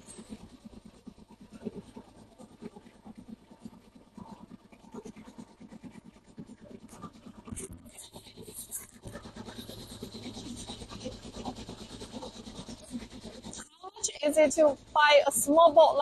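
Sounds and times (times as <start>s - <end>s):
motor boat engine chugging: 6.4s - 16.0s
thin high whine: 6.9s - 16.0s.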